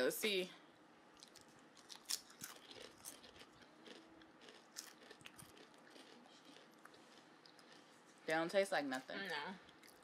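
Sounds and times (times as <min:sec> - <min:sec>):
chips crunching: 0:01.2 - 0:07.9.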